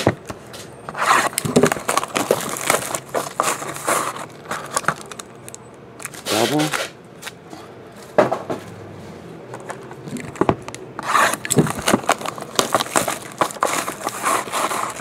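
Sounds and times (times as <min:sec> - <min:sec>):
plastic card packs rustling: 0:00.6 - 0:06.9, 0:09.6 - 0:15.0
cardboard box scraping: 0:00.9 - 0:04.8, 0:11.0 - 0:15.0.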